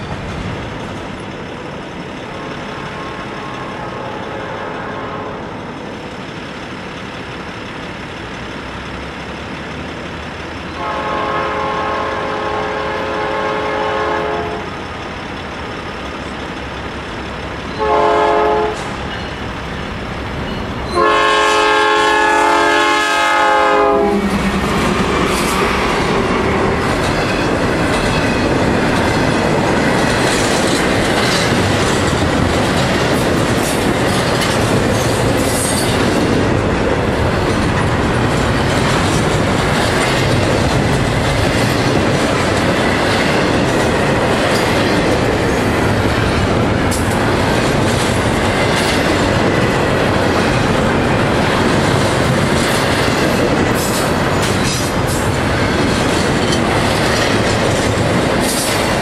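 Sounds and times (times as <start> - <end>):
clickety-clack at rail joints: 0.0 - 59.0
train wheels rumbling on rail: 0.0 - 59.0
locomotive horn blast: 3.0 - 5.5, 10.8 - 14.7, 17.8 - 18.9, 20.9 - 24.6.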